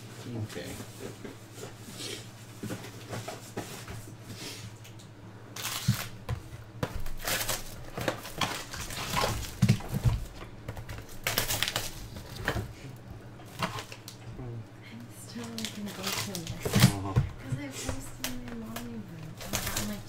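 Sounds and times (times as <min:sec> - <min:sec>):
foil pack crinkling: 0:05.5 - 0:12.7, 0:13.5 - 0:14.2, 0:15.3 - 0:17.0, 0:18.0 - 0:20.0.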